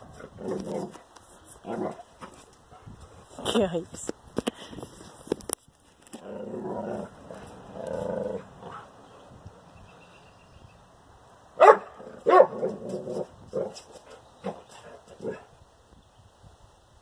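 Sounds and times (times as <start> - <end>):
dog growling low: 6.2 - 8.9
dog barking: 11.6 - 12.7.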